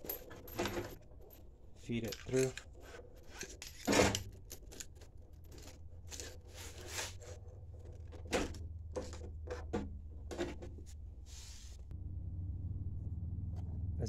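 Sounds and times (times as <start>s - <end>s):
low hum: 11.0s - 14.0s.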